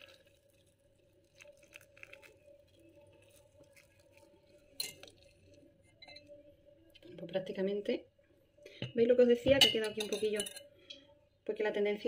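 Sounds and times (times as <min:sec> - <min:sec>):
liquid pattering onto cake: 0:00.0 - 0:06.3.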